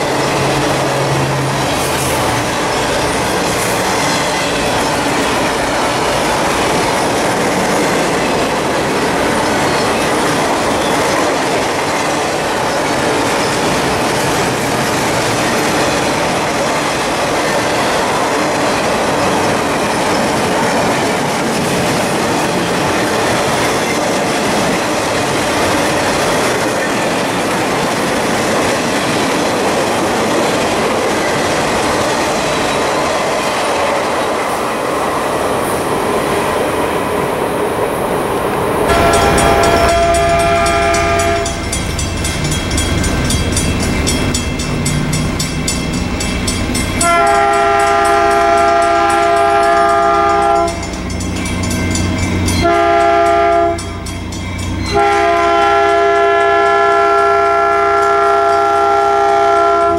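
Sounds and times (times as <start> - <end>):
freight train wheels on rail: 0.0 - 59.9
locomotive horn chord: 38.9 - 41.8, 47.0 - 50.8, 52.6 - 54.0, 54.9 - 59.9.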